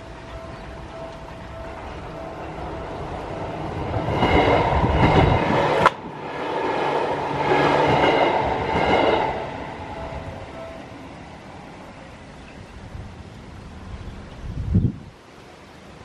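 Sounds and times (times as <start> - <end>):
level crossing warning bell: 0.0 - 5.9, 7.2 - 12.0
train wheels rattling and rumbling: 0.0 - 10.8.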